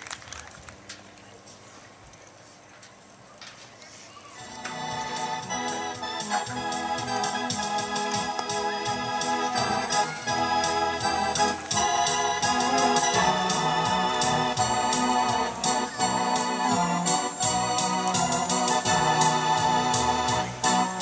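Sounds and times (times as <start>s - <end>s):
organ playing held chords: 4.4s - 21.0s.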